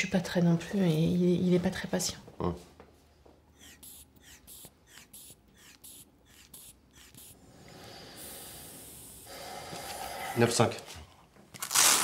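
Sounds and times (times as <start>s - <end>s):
rubber bulb pumping air: 3.6s - 10.2s
air hissing out of cuff: 7.4s - 10.4s.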